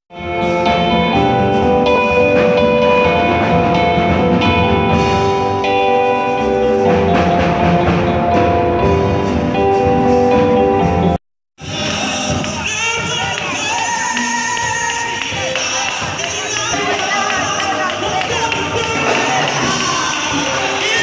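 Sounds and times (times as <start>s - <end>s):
drums: 0.1s - 21.0s
gospel band held chords: 0.1s - 21.0s
hand percussion: 11.6s - 21.0s.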